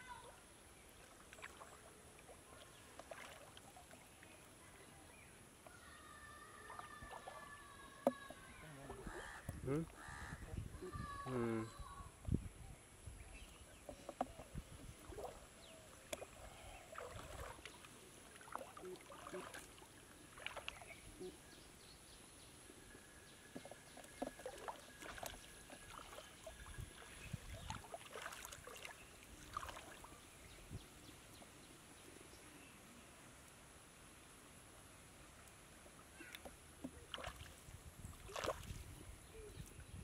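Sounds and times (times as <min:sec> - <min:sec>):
water splashes and drips: 0:00.0 - 0:04.6, 0:06.4 - 0:09.2, 0:14.1 - 0:21.0, 0:23.4 - 0:30.7, 0:35.2 - 0:39.0.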